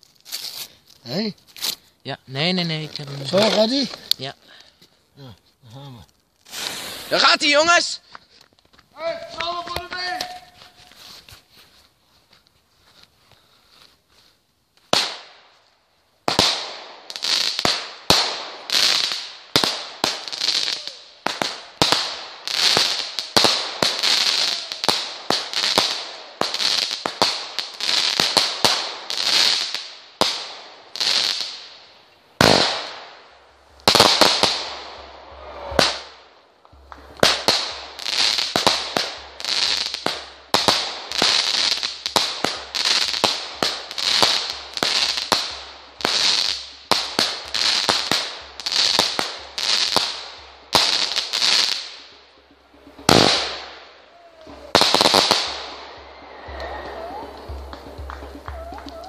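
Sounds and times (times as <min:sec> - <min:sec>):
firework bangs with crackle: 0:06.4 - 0:07.8, 0:14.9 - 0:15.6, 0:16.2 - 0:31.8, 0:32.4 - 0:52.2, 0:52.9 - 0:59.0.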